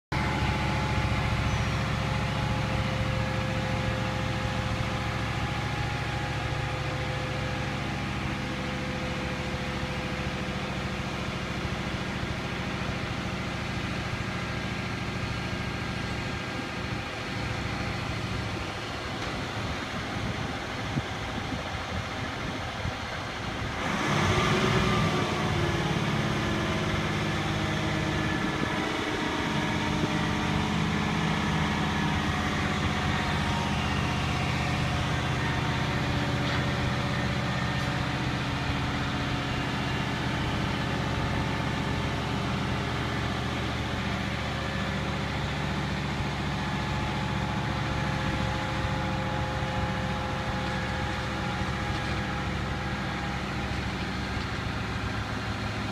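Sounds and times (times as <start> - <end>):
crane diesel engine: 0.0 - 55.9
thin steady whine: 26.9 - 55.9.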